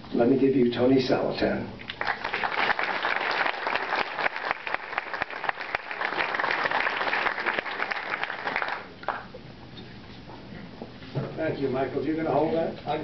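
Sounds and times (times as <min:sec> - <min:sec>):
audience applauding: 0:01.9 - 0:09.3.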